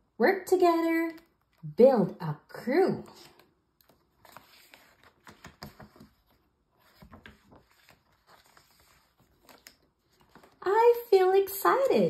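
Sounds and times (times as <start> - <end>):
book page rustling and turning: 1.1 - 1.7, 3.1 - 10.7.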